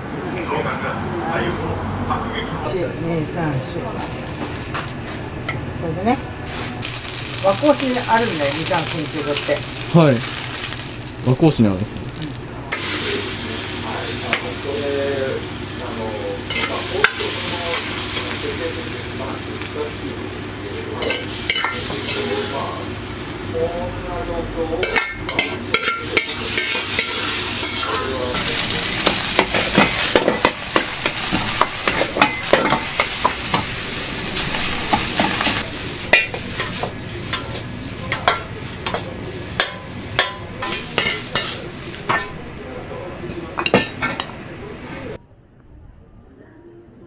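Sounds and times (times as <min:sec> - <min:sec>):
rice sizzling in a wok: 0:06.5 - 0:42.4.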